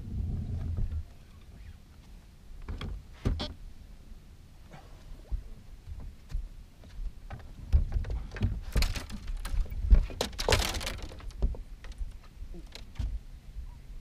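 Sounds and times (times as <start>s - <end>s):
thumps and knocks on boat deck: 7.3s - 9.1s.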